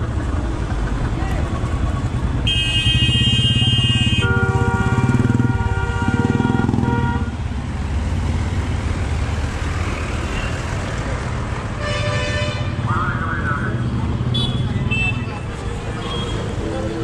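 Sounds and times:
traffic din: 0.0 - 17.0
vehicle horns honking: 2.4 - 7.5, 11.8 - 13.0, 14.2 - 15.4.

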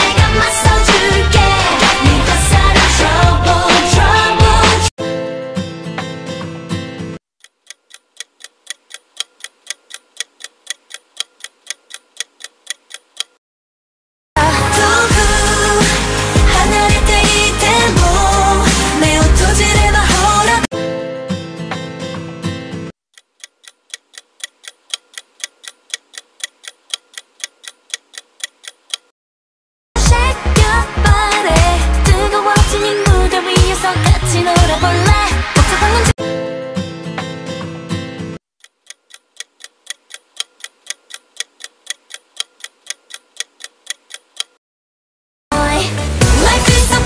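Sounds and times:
pop song: 0.0 - 4.9, 14.4 - 20.8, 30.0 - 36.4, 45.5 - 47.0
clock ticking: 7.4 - 13.4, 23.1 - 29.1, 38.6 - 44.6.

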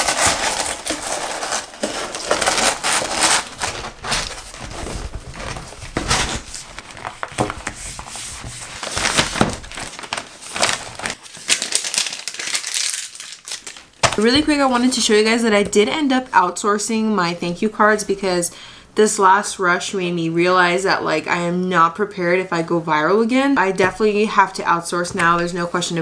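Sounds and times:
cardboard box folding: 0.0 - 13.0
packing paper rustling: 0.0 - 15.3.

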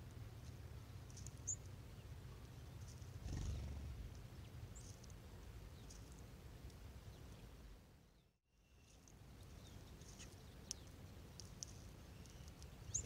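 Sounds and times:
faint low rumble: 0.0 - 13.0
songbird chips: 8.7 - 13.0.

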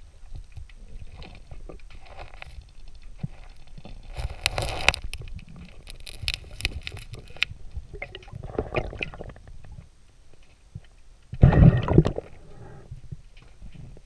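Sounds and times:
underwater clicks and knocks: 0.3 - 9.9.

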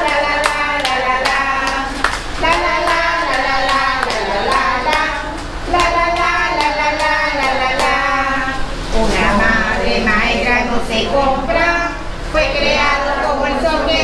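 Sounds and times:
song with clapping beat: 0.0 - 8.3.

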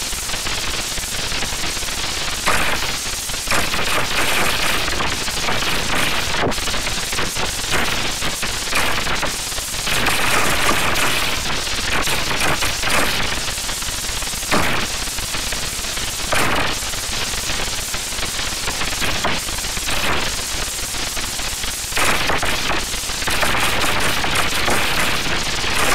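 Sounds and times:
harsh crackling noise: 0.0 - 25.9.

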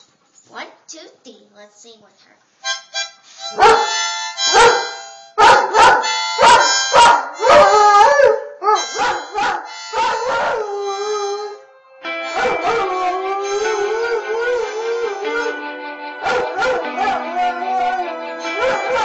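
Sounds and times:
harmonica chords and notes: 2.6 - 19.0
dog howling: 7.4 - 8.9, 9.9 - 11.6, 12.3 - 15.6, 16.2 - 19.0.

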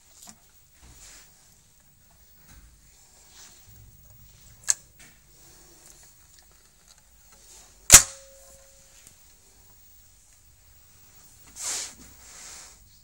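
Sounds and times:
faint handling noises: 0.0 - 13.0
sharp loud crack: 7.9 - 8.4.

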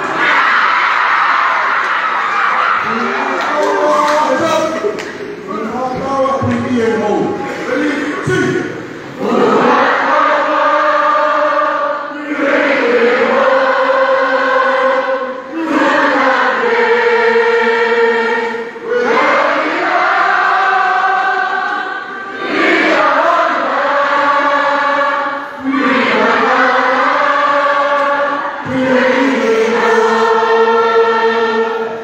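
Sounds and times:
choir singing: 9.1 - 32.0.

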